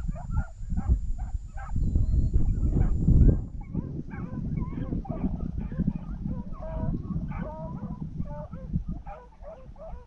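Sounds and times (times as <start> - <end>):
beagles baying: 0.0 - 10.0.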